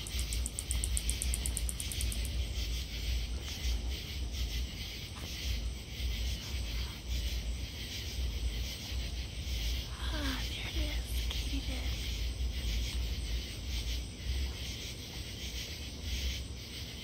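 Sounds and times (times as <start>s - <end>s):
faint high ticking: 0.0s - 2.5s
katydid clicking: 0.0s - 2.8s
low steady rumble: 0.0s - 17.0s.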